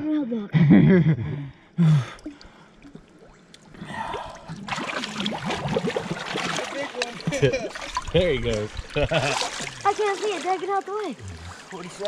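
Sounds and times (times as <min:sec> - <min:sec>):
person gasping: 0:01.3 - 0:02.7, 0:03.8 - 0:04.5
river water splashing: 0:02.2 - 0:12.0.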